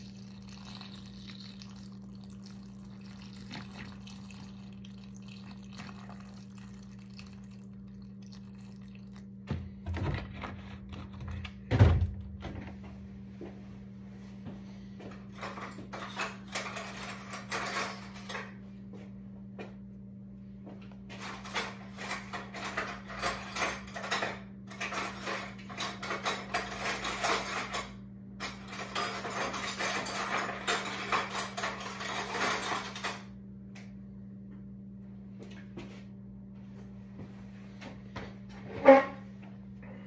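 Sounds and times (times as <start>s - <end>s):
low appliance hum: 0.0s - 40.0s
dishes and utensils clinking: 21.2s - 33.3s.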